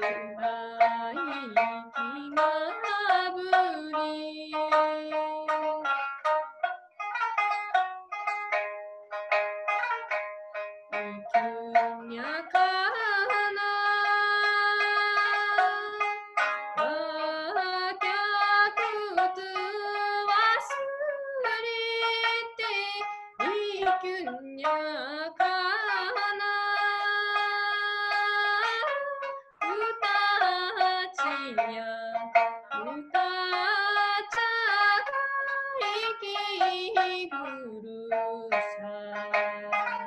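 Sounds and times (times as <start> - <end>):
woman singing long held notes: 0.0 - 5.2, 11.0 - 16.0, 29.7 - 39.9
plucked lute notes: 0.0 - 40.0.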